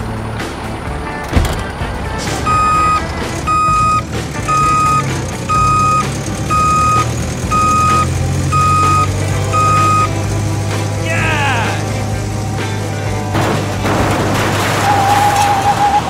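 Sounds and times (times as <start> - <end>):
excavator engine running: 0.0 - 16.0
excavator travel alarm beeping: 2.4 - 10.2.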